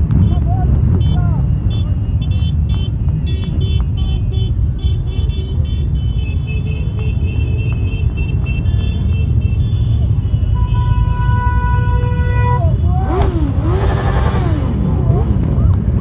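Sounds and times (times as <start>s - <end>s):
motorcycle engines rumbling: 0.0s - 16.0s
high-pitched horn toots: 5.8s - 13.3s.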